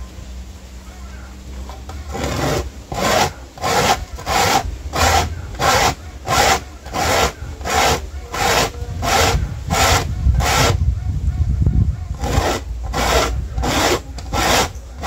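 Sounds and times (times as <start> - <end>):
corn cob rasping on metal grater: 1.8 - 10.8, 12.2 - 15.0.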